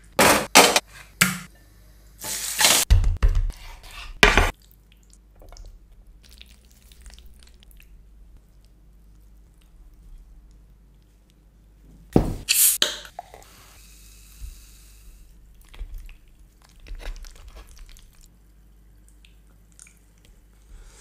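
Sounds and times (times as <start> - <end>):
clicks and squishing of pasta: 4.5 - 11.5, 15.4 - 20.7.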